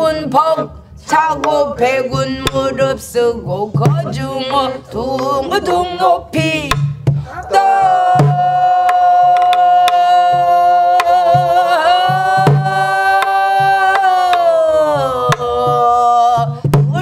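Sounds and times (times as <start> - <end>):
low drum thumps: 1.1 - 17.0
woman singing long note: 4.0 - 6.7, 7.5 - 17.0.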